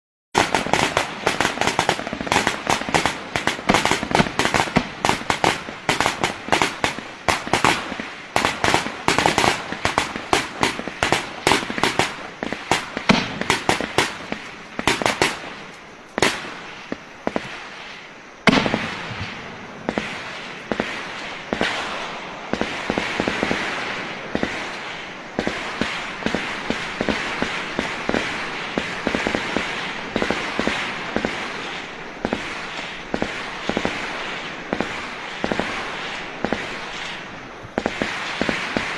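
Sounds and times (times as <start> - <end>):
rapid rifle shots: 0.4 - 15.6, 19.9 - 23.7, 25.4 - 37.2, 37.8 - 38.9
very loud gunshot: 18.5 - 24.6.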